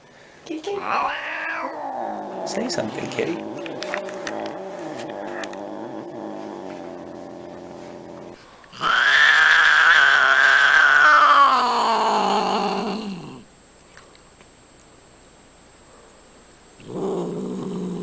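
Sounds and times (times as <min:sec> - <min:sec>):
cat yowling: 0:00.8 - 0:02.6, 0:08.8 - 0:13.4
cat growling low: 0:00.8 - 0:13.5, 0:16.8 - 0:18.0.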